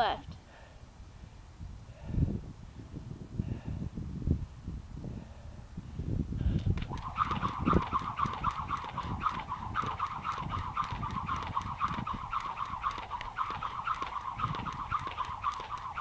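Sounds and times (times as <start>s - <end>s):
jump rope whirring and ticking: 6.4s - 16.0s.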